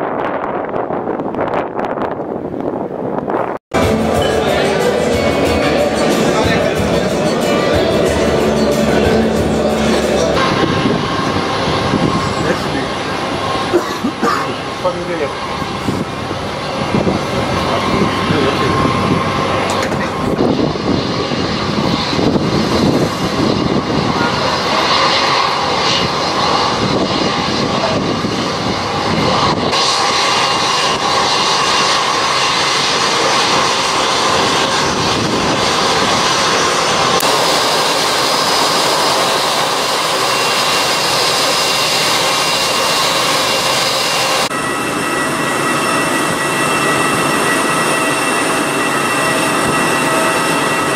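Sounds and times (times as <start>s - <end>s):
jet engine whine: 0.0s - 50.9s
jet engines rumbling: 0.0s - 50.9s.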